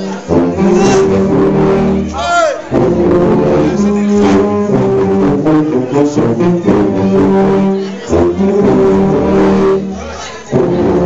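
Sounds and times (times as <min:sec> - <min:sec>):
sousaphones playing low notes: 0:00.0 - 0:11.0.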